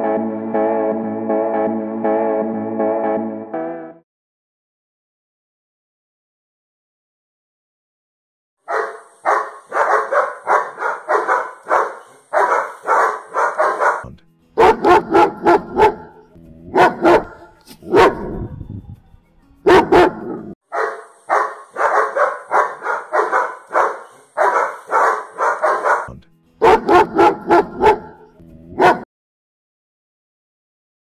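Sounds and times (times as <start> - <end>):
dog barking rapidly: 8.7 - 18.5, 19.7 - 29.1.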